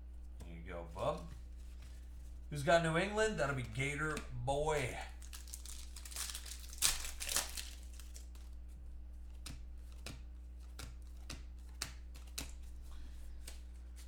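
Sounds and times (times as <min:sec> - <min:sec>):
steady low hum: 0:00.0 - 0:14.0
cards flipping with clicks: 0:03.6 - 0:08.6, 0:09.2 - 0:14.0
foil pack crinkling and tearing: 0:04.8 - 0:08.6.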